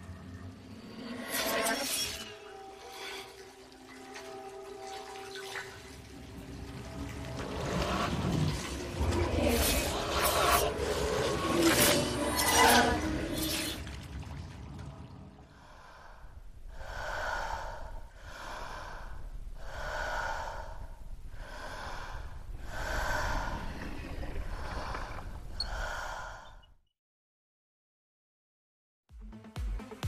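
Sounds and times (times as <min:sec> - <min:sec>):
loud scraping: 0:07.8 - 0:13.8
person breathing heavily: 0:15.5 - 0:26.7.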